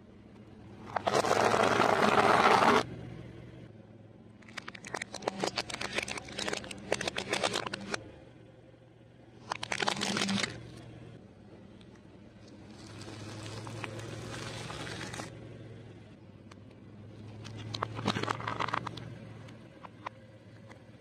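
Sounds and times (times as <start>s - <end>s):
car engine hum: 0.0s - 21.0s
plastic toys cracking under tyre: 4.4s - 8.0s, 9.4s - 10.7s, 17.4s - 19.0s.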